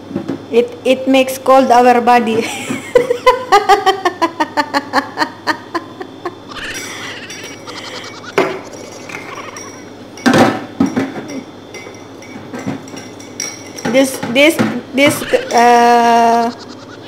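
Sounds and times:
rapid laughter: 0:02.9 - 0:09.9, 0:15.1 - 0:17.0
kitchenware clattering: 0:06.5 - 0:16.2.

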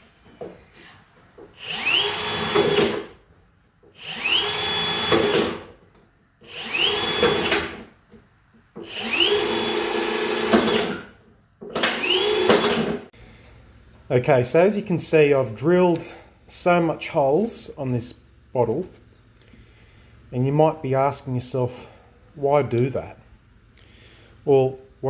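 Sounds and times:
cordless drill boring through plastic: 0:01.6 - 0:03.1, 0:04.0 - 0:05.7, 0:06.4 - 0:07.8, 0:08.8 - 0:11.2, 0:11.8 - 0:13.1.

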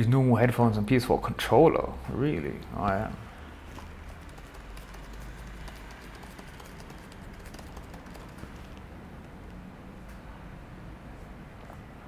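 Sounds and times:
keyboard typing: 0:03.7 - 0:09.3.

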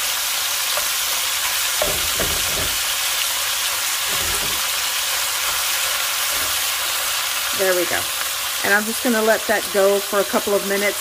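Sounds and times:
beef sizzling in hot oil: 0:00.0 - 0:11.0
wooden spoon scraping pot: 0:01.8 - 0:02.9, 0:04.0 - 0:04.8.

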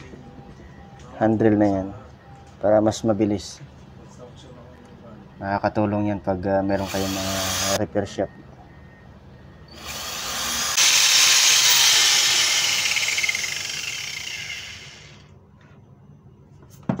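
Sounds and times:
angle grinder motor whining: 0:06.8 - 0:07.8, 0:09.7 - 0:15.3.

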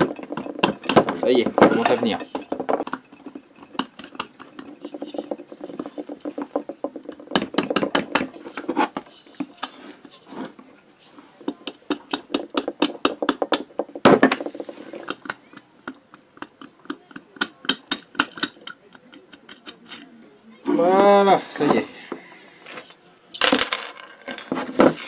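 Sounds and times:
rubber mallet tapping metal: 0:00.0 - 0:08.4, 0:11.5 - 0:19.8
metallic clicks and knocks: 0:00.0 - 0:08.7, 0:11.5 - 0:20.1.

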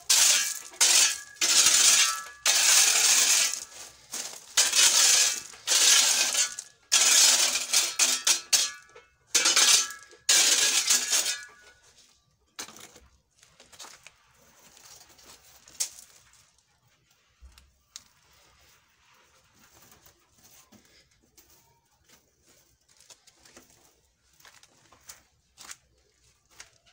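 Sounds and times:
shovel scraping through gravel: 0:00.0 - 0:11.8.

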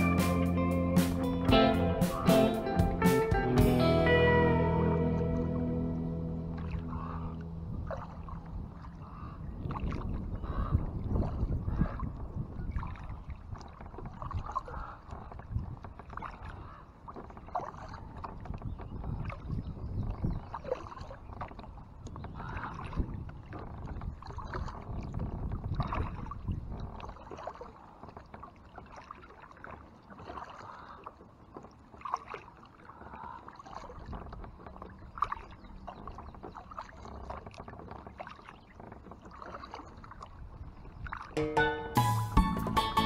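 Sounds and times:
low rumble: 0:00.0 - 0:10.7
paddle splashing in water: 0:06.3 - 0:43.0.

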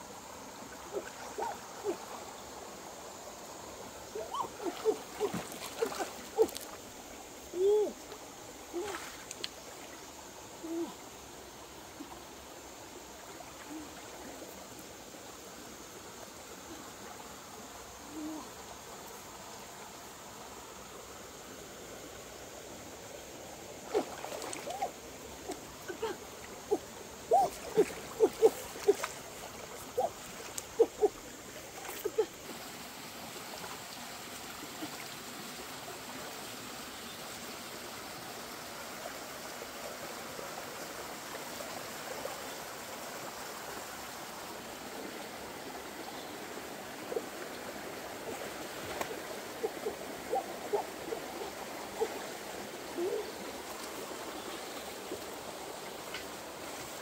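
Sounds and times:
stream water running: 0:00.0 - 0:57.0
water splashes and plops: 0:04.2 - 0:07.1, 0:08.1 - 0:10.0, 0:23.8 - 0:35.5, 0:47.0 - 0:57.0.

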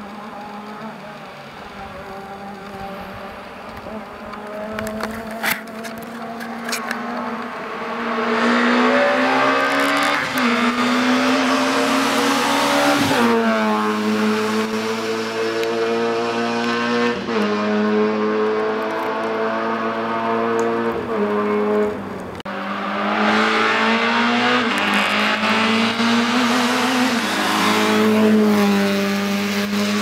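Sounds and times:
rally car engine at full throttle: 0:00.0 - 0:30.0.

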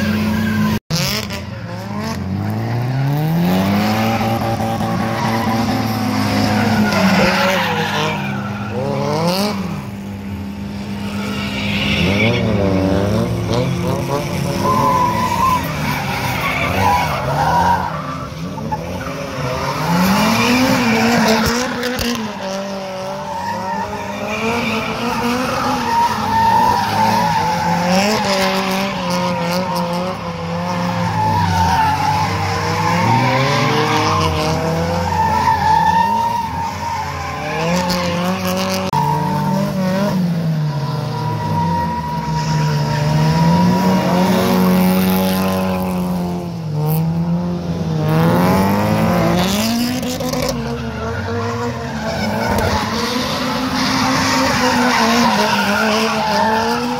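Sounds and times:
car engines revving: 0:00.0 - 0:56.9.

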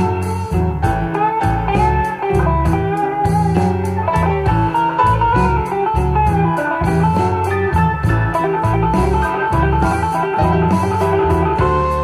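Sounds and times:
music with strong bass and beat: 0:00.0 - 0:12.0.

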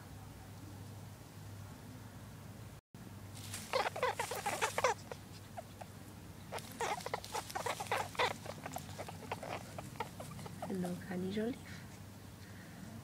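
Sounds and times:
straw and fur rustling and crackling: 0:03.3 - 0:11.6.

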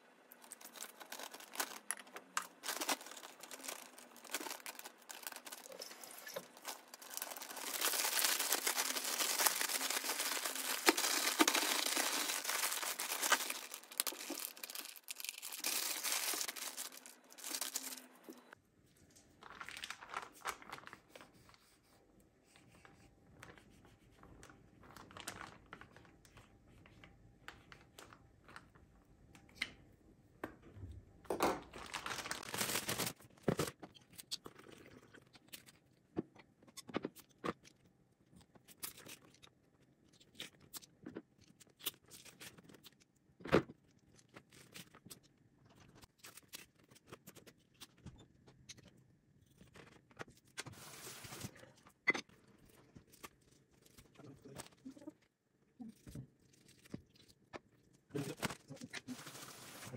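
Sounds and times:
rustling: 0:00.4 - 0:18.6.

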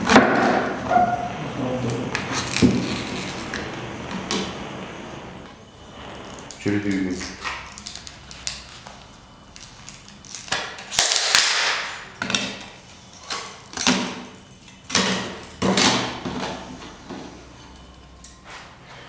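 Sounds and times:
foil layer tearing: 0:02.2 - 0:03.6, 0:06.2 - 0:12.4.

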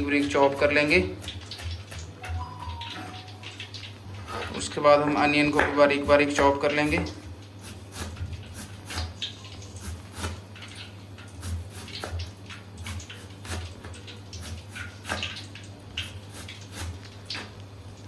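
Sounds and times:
knife chopping on cutting board: 0:05.6 - 0:09.2.

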